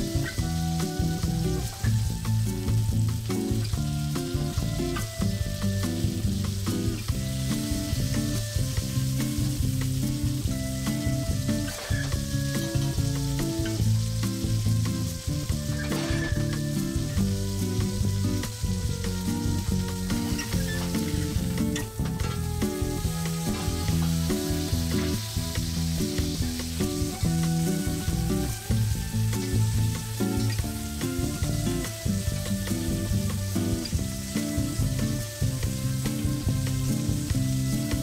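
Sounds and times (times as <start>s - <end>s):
background music: 0.0s - 38.0s
steak sizzling in butter: 0.0s - 38.0s
spoon scraping a pan: 15.7s - 16.6s.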